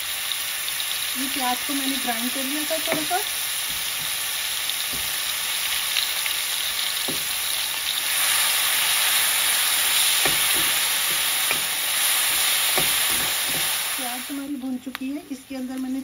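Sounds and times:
onion sizzling in oil: 0:00.0 - 0:16.0
metal spoon scraping pan: 0:10.0 - 0:13.8.

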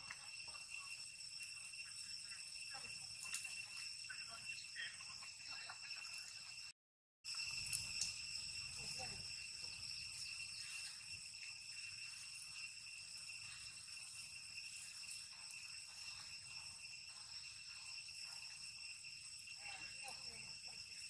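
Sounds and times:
insects shrilling: 0:07.3 - 0:21.0.

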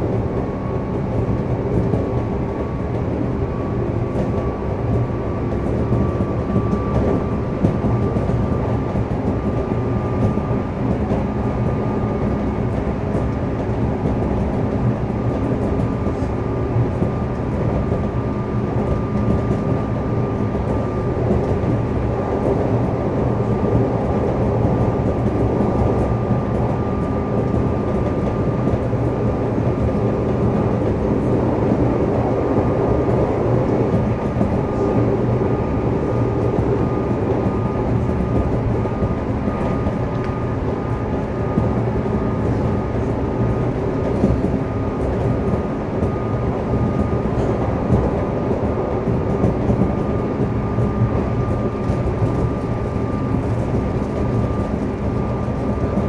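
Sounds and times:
train wheels rumbling on rail: 0:00.0 - 0:56.0.

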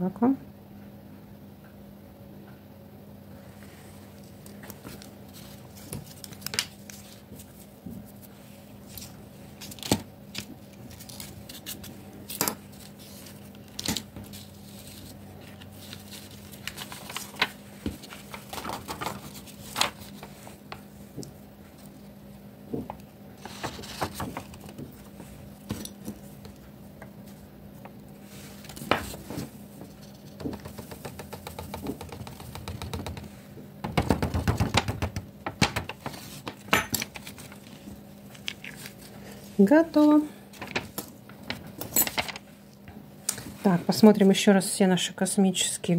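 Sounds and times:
steady low hum: 0:00.0 - 0:45.9
paper rustling and scraping: 0:03.7 - 0:21.1, 0:23.4 - 0:26.5, 0:28.2 - 0:30.3, 0:35.9 - 0:39.7, 0:40.5 - 0:42.5.

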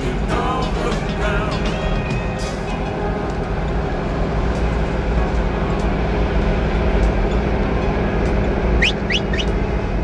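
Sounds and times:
truck engine and road noise: 0:00.0 - 0:10.0.

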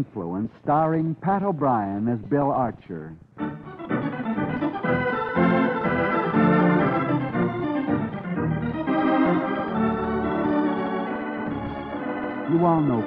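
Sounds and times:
organ chords: 0:00.0 - 0:13.0.

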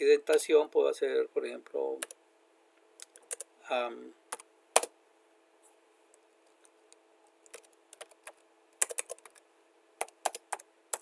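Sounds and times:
keyboard typing: 0:03.0 - 0:03.5, 0:04.3 - 0:04.9, 0:06.5 - 0:09.4, 0:10.0 - 0:11.0.

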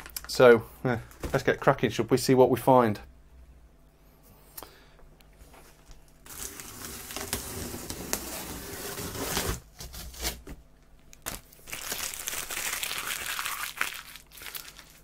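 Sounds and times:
tape crinkling and rustling: 0:00.0 - 0:00.4, 0:05.5 - 0:15.0
packing tape tearing: 0:06.3 - 0:10.4.

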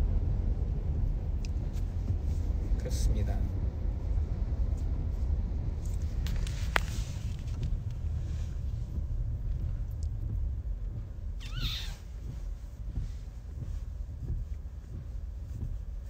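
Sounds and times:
car cabin rumble: 0:00.0 - 0:16.0
gliding squeak: 0:11.4 - 0:12.0.

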